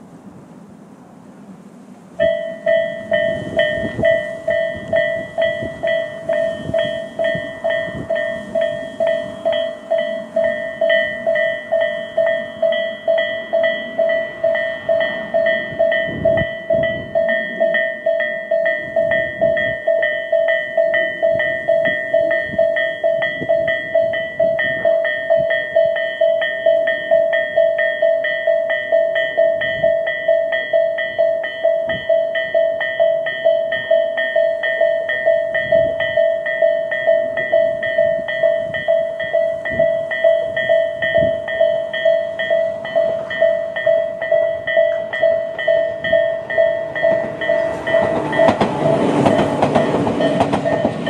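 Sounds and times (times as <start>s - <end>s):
level crossing bells dinging: 2.2s - 51.0s.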